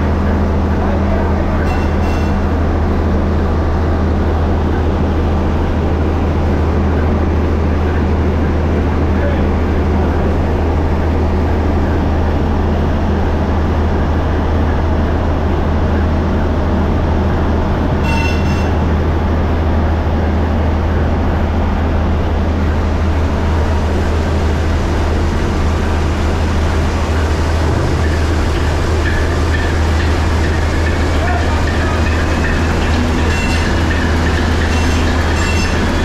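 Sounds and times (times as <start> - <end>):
diesel engine droning: 0.0 - 36.0.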